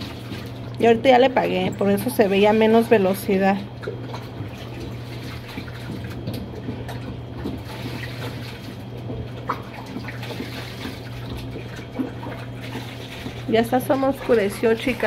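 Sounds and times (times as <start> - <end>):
washing machine hum: 0.0 - 15.0.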